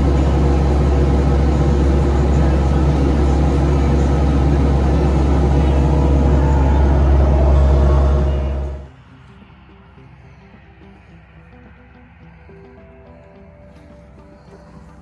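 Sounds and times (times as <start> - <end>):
excavator diesel engine running: 0.0 - 8.9.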